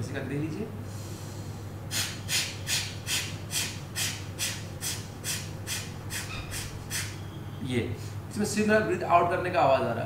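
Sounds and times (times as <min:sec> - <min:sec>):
forceful nasal exhalations: 0:00.9 - 0:07.2.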